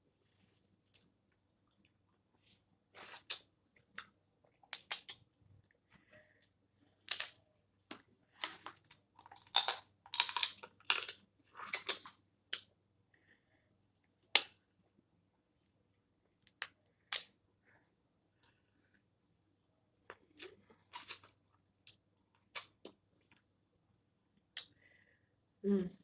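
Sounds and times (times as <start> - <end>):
crab shells cracking: 8.9 - 11.2.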